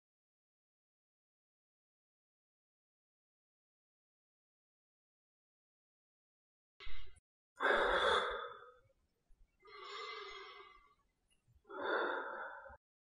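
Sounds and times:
man breathing through nebulizer mask: 9.6s - 11.0s.

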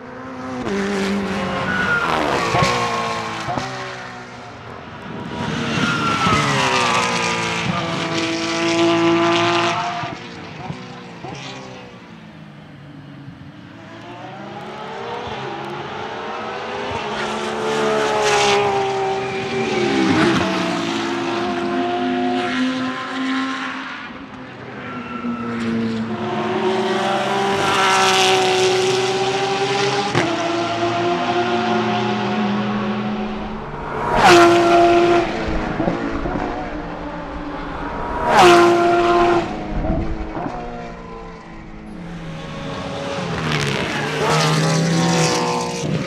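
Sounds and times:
racing car engine passing: 26.8s - 46.0s.

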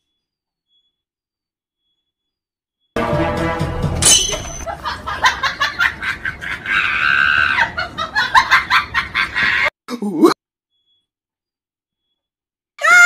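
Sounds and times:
person laughing and shrieking: 5.2s - 10.3s.

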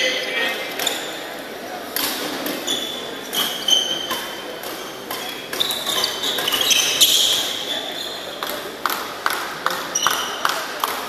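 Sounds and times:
shoes squeaking on court floor: 0.0s - 1.4s, 2.2s - 10.6s
racket striking shuttlecock: 8.4s - 11.0s.

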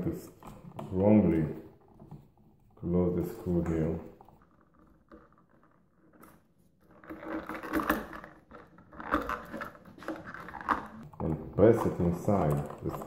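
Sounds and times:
small clicks and metal scrapes: 3.7s - 13.0s.

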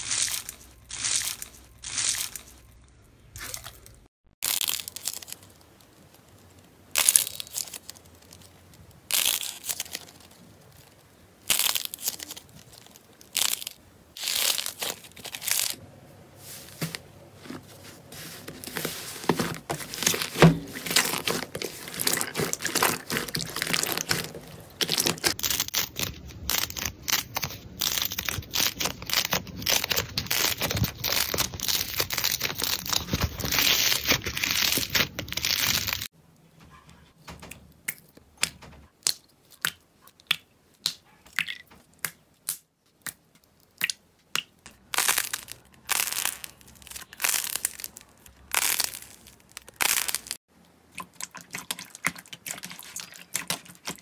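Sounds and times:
slime squelching and crackling: 0.0s - 2.8s, 3.4s - 15.8s, 18.0s - 36.1s, 44.7s - 54.0s.

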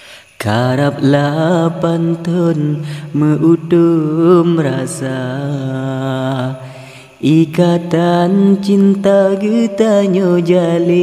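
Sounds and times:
man chanting: 0.4s - 11.0s.

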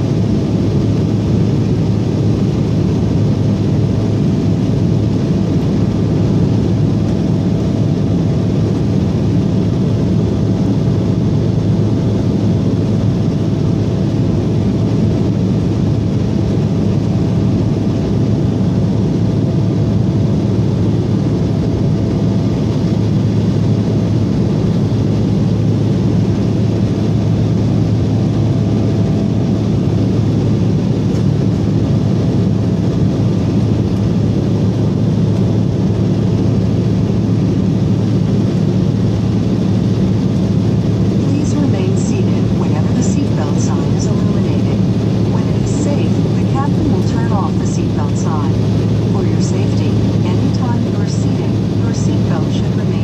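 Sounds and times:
steady low hum: 0.0s - 53.0s
jet engine cabin rush: 25.8s - 53.0s.

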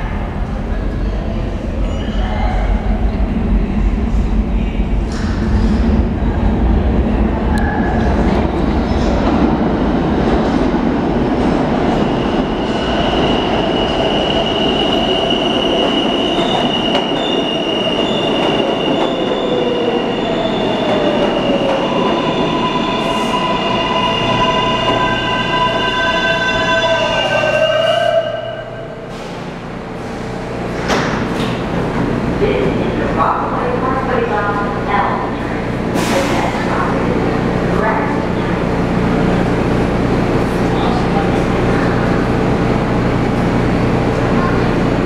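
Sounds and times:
train wheels rumbling on rail: 28.2s - 45.0s.

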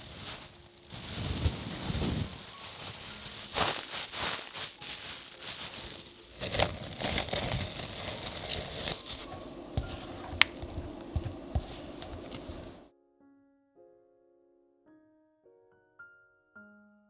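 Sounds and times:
cling wrap rustling: 0.0s - 12.9s
plastic bag crinkling: 0.0s - 12.9s.

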